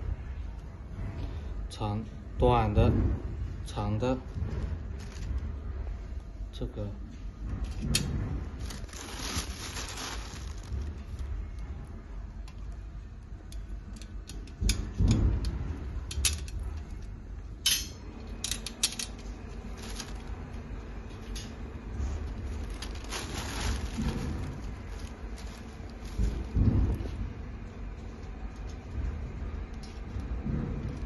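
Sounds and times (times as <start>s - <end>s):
dull low thud: 23.5s - 27.6s.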